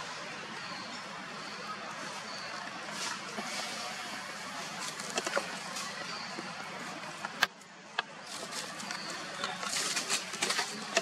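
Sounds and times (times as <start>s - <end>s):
outdoor background hiss: 0.0s - 11.0s
faint rustles: 8.2s - 11.0s.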